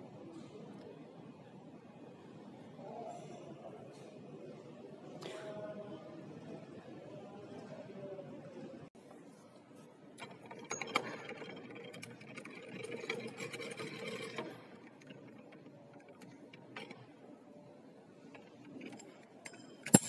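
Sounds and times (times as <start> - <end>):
small machine whirring and clicking: 10.2 - 17.5, 18.2 - 20.0
metal being handled: 18.3 - 20.0.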